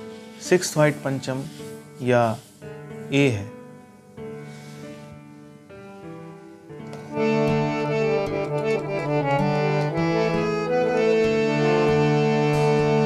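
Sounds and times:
harmonium chords: 0:06.9 - 0:13.0.

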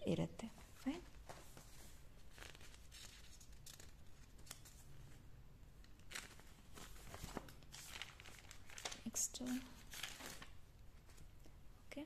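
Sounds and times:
notebook pages rustling: 0:00.8 - 0:05.0, 0:05.9 - 0:11.3.

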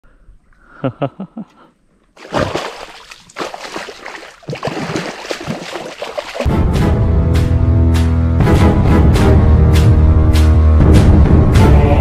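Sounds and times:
hands splashing in shallow water: 0:02.2 - 0:06.5.

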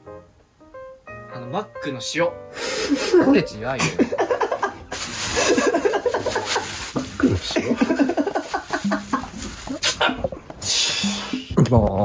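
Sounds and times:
hearty laughter: 0:02.9 - 0:10.3.

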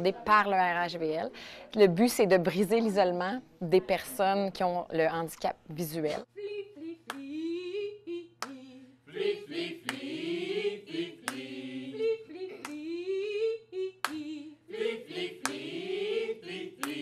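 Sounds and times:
choir singing a cappella: 0:06.3 - 0:17.0
sharp hand clap: 0:09.8 - 0:10.1, 0:11.2 - 0:11.5, 0:15.4 - 0:15.7, 0:16.8 - 0:17.0.

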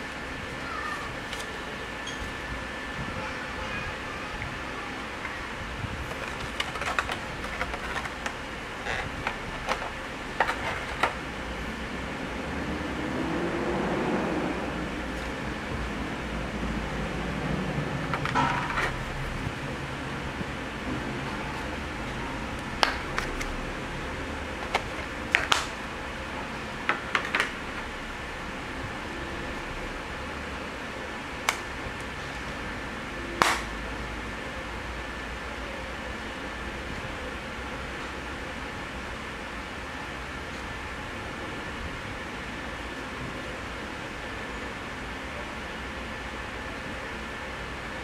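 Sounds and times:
low background noise: 0:00.0 - 0:48.0
plastic case clicks and crackles: 0:06.1 - 0:11.2, 0:24.6 - 0:25.8.

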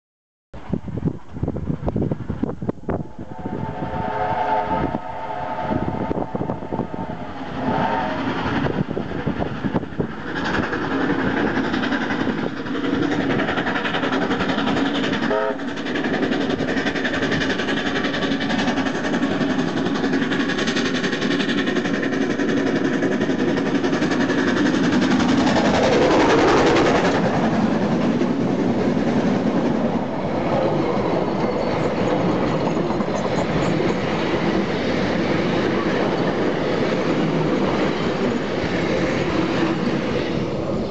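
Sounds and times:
steam locomotive running: 0:00.8 - 0:40.9
train wheels clickety-clack: 0:01.3 - 0:40.9
steam locomotive whistle: 0:02.9 - 0:08.6, 0:15.2 - 0:15.7.

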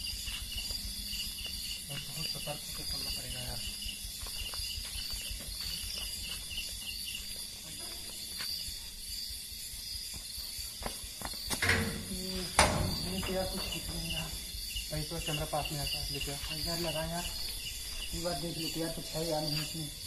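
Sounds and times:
crickets chirping: 0:00.0 - 0:20.0
metal door opening: 0:11.5 - 0:14.2
loud metallic knocks: 0:11.6 - 0:14.4.

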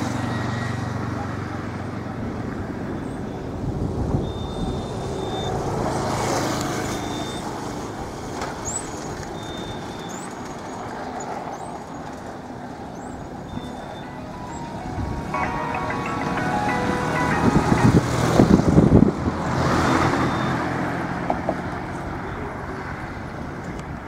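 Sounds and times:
road traffic rumble: 0:00.0 - 0:24.0
vehicle passing: 0:12.2 - 0:23.4.

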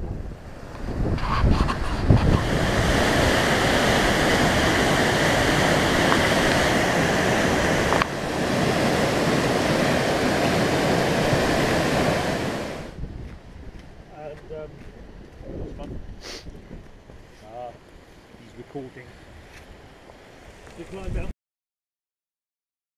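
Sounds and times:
wind buffeting microphone: 0:00.0 - 0:21.3
waterfall rushing: 0:02.1 - 0:13.0.

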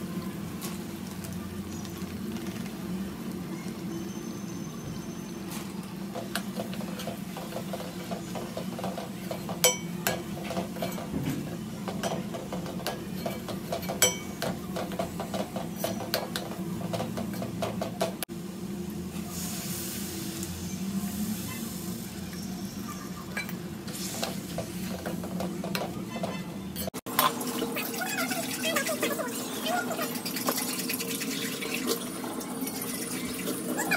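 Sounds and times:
sizzling hiss: 0:18.4 - 0:25.0.

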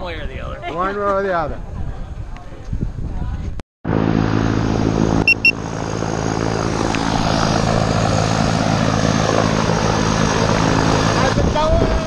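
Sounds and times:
propeller engines droning: 0:03.9 - 0:12.0.

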